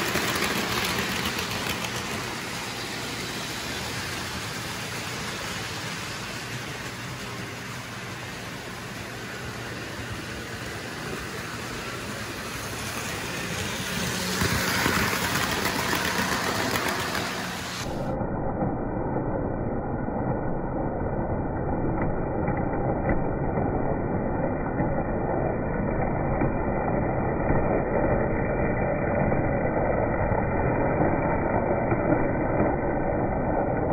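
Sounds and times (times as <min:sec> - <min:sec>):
model train rumbling on track: 0:00.0 - 0:18.1.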